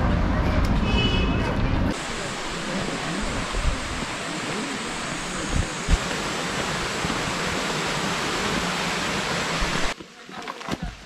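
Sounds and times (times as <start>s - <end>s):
stream flowing over stones: 1.9s - 11.0s.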